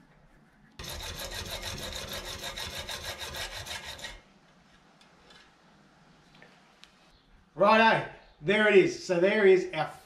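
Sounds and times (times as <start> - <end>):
hacksaw cutting metal rod: 0.8 - 4.2.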